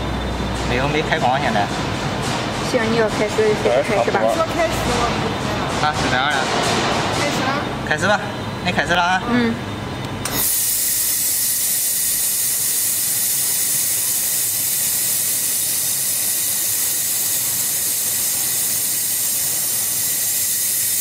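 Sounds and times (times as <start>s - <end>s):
gas hissing from nozzle: 10.2s - 21.0s.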